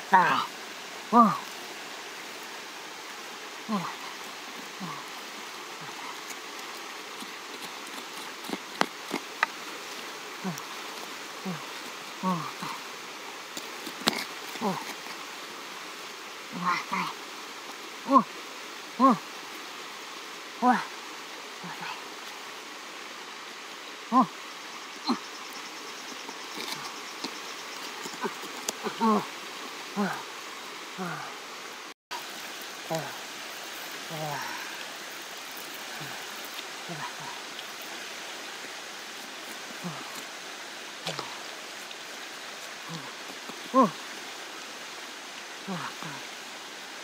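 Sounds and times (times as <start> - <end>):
insects buzzing: 0.0 - 47.0
steady outdoor hiss: 0.0 - 47.0
voice-like cry: 3.7 - 4.0, 16.5 - 17.2, 28.2 - 29.3.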